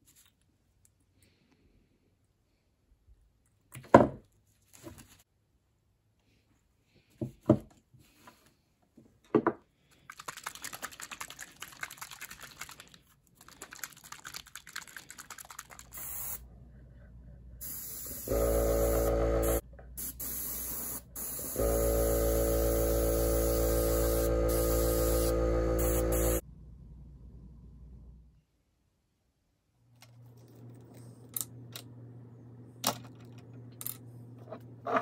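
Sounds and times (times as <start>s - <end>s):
compressor humming: 17.6s - 19.6s, 21.2s - 26.4s
airbrush hissing: 17.6s - 26.4s.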